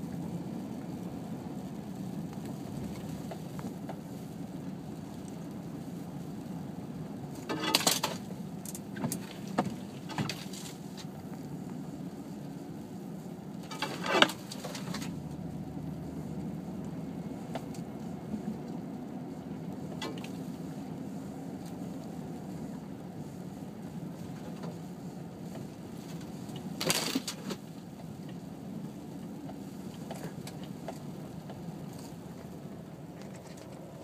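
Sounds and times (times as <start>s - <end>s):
car cabin low drone: 0.0s - 34.0s
crackles and knocks: 0.8s - 6.4s, 7.2s - 12.6s, 13.2s - 15.4s, 21.6s - 28.5s, 29.2s - 34.0s.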